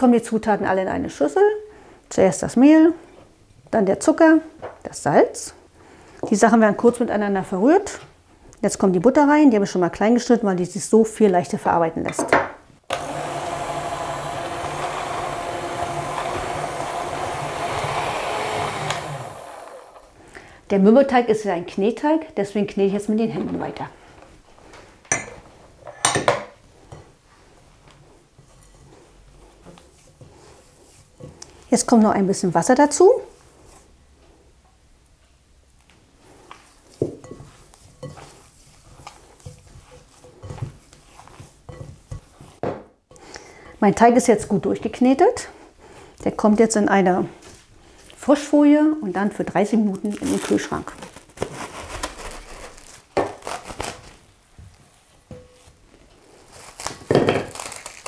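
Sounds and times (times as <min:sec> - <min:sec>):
electric hand mixer running: 0:12.9 - 0:20.1
dough thumps and squishes: 0:36.5 - 0:42.9.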